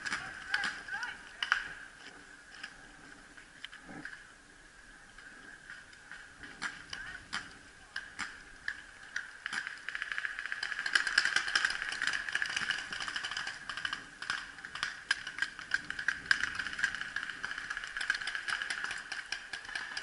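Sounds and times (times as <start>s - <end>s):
paintball markers firing: 6.4s - 20.0s.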